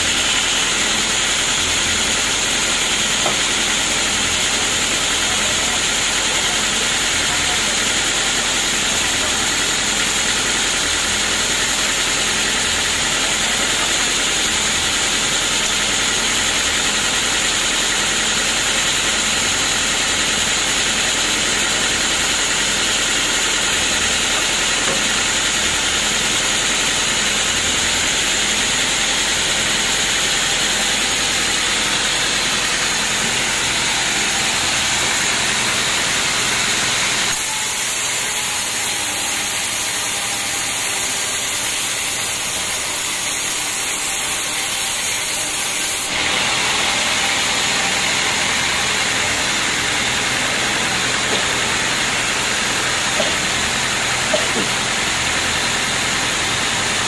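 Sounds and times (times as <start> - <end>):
band sawmill hissing hum: 0.0 - 57.0
saw blade cutting log: 0.0 - 57.0.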